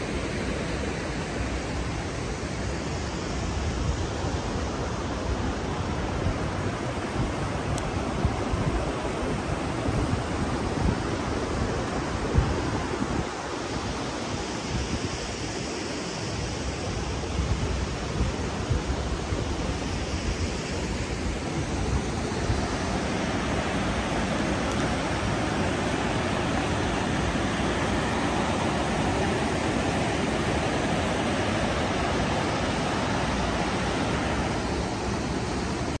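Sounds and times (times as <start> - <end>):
stream rushing over boulders: 0.0 - 36.0.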